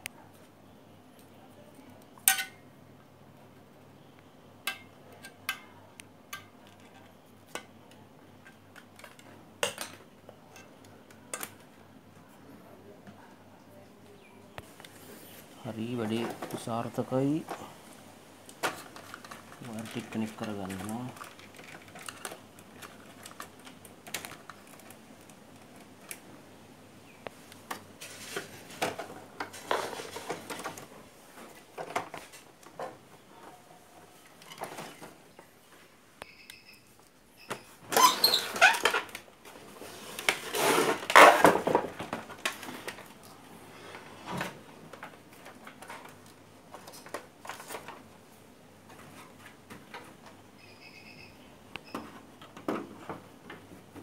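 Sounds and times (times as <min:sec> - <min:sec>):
handling metal and plastic parts: 0:18.5 - 0:26.2, 0:44.0 - 0:48.1.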